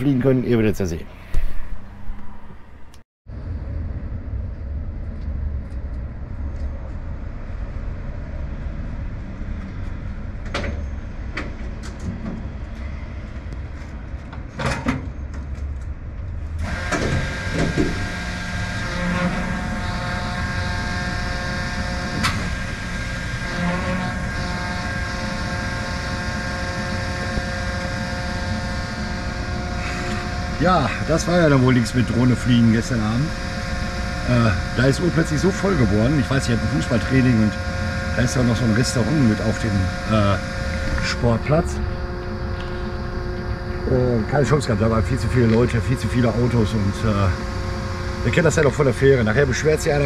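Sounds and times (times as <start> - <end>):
truck engine rumbling: 15.1 - 50.0
drone with held tones: 16.6 - 50.0.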